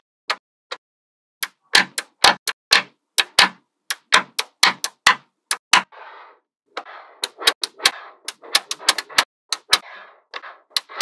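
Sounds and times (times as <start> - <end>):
magnetic balls clicking together: 7.2 - 9.8.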